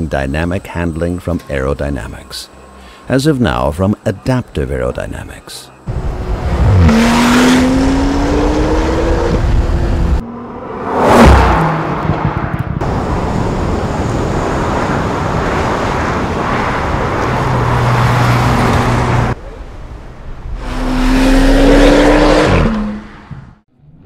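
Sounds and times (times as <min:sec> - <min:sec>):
car passing by loudly: 0:05.9 - 0:19.4
sports car accelerating: 0:05.9 - 0:19.4, 0:20.5 - 0:24.0.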